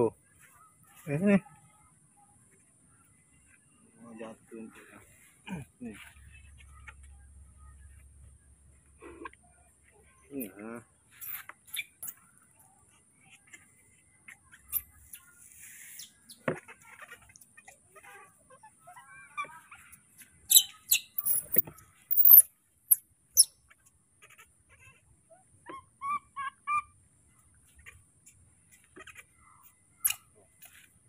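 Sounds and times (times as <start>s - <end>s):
short chirping calls: 11.1s - 12.2s, 14.6s - 16.5s, 20.4s - 23.6s.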